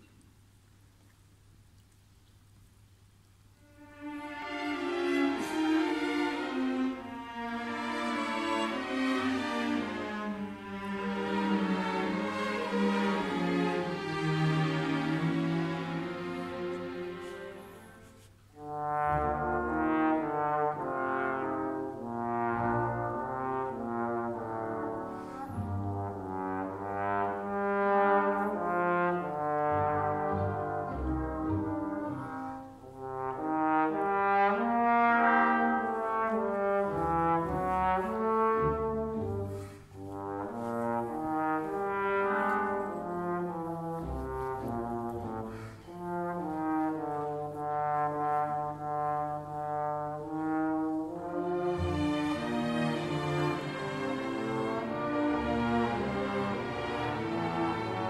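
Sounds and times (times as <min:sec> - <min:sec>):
orchestra strings: 0:00.0 - 0:58.0
trombones playing sustained chords: 0:18.6 - 0:58.0.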